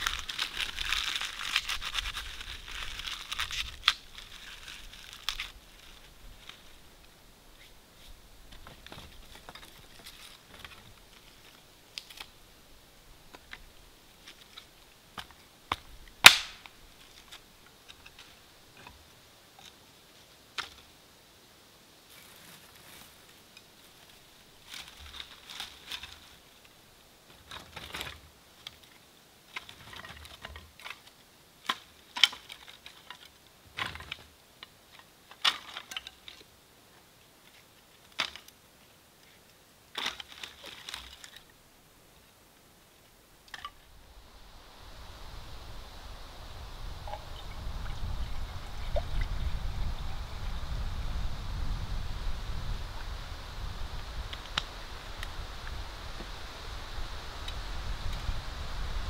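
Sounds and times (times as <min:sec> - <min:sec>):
twigs snapping: 0:00.0 - 0:06.6, 0:14.3 - 0:17.4
wood cracking: 0:00.0 - 0:06.7, 0:14.2 - 0:18.4, 0:34.9 - 0:36.4, 0:39.9 - 0:41.5
rustling: 0:00.0 - 0:21.0, 0:22.0 - 0:49.4.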